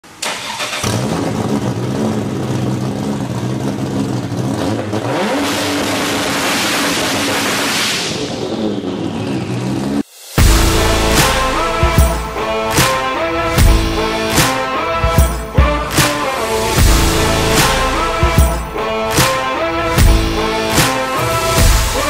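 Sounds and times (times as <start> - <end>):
car engine revving: 0.2 - 22.0
rushing noise: 5.9 - 22.0.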